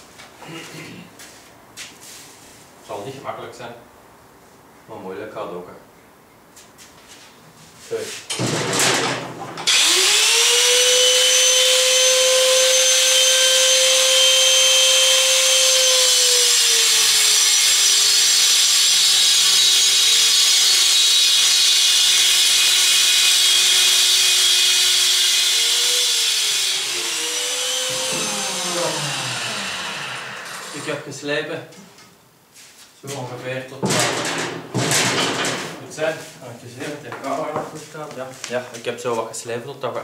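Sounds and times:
angle grinder whining: 9.6 - 31.0.

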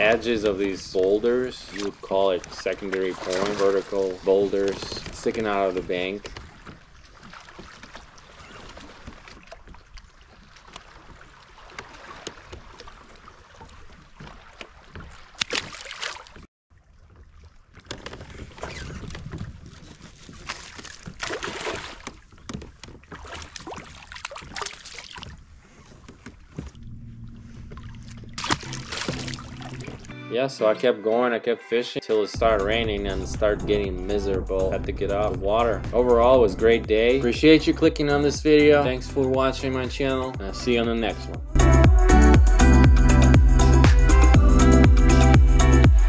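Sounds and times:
water splashing and sloshing: 0.0 - 30.2, 32.4 - 46.0
wind on microphone: 18.0 - 21.2, 32.4 - 36.9
low background music: 26.8 - 46.0.

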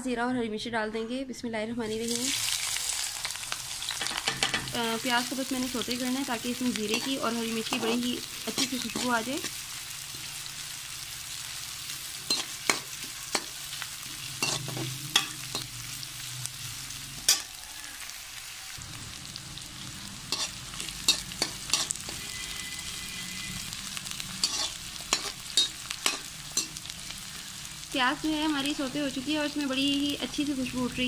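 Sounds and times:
onions sizzling in hot oil: 1.9 - 31.0
spoon scraping metal pot: 12.3 - 13.5, 14.4 - 15.7, 20.3 - 22.3, 24.4 - 26.8.

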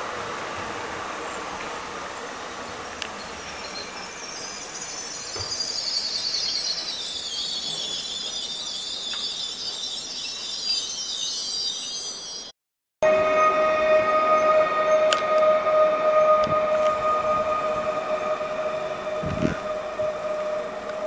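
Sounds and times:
train brakes squealing: 0.0 - 21.0
train rumble: 13.0 - 21.0.

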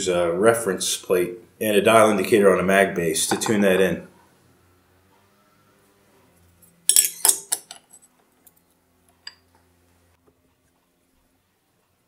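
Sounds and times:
metal plate clinking and knocking: 3.3 - 4.0.

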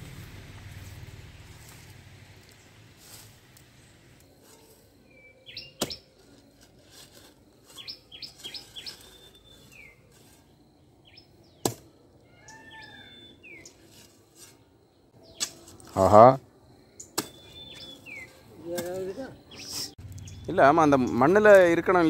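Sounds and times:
small birds chirping: 3.6 - 6.5, 7.6 - 13.9, 14.5 - 16.0, 16.6 - 21.7
hoe striking hard soil: 5.7 - 7.2, 11.6 - 11.9, 15.3 - 16.0, 17.1 - 19.9.

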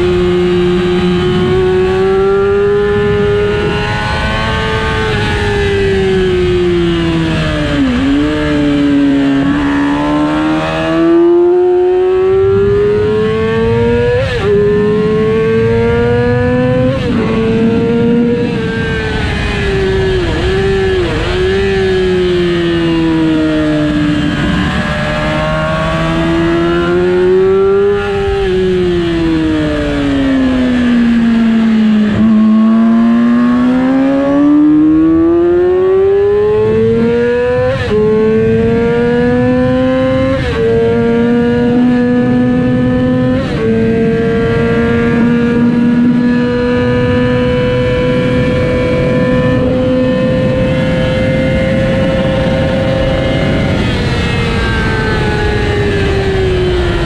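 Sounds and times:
motorcycle engine revving: 0.0 - 57.0
rush of noise: 12.6 - 33.5.

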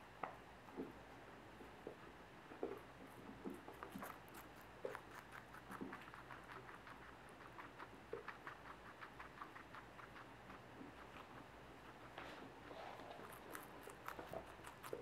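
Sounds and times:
guinea pig chewing food: 0.7 - 15.0.

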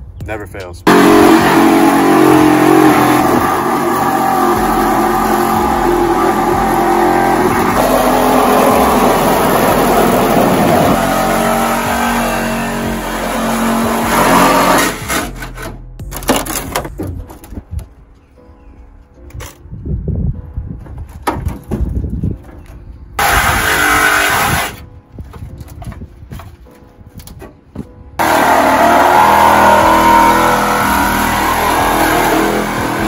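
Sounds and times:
reciprocating saw cutting metal: 0.9 - 15.7, 23.2 - 24.8.

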